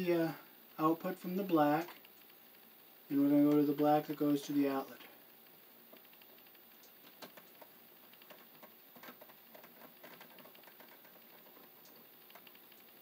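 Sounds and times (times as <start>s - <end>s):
wires clicking and scraping: 0.7s - 13.0s.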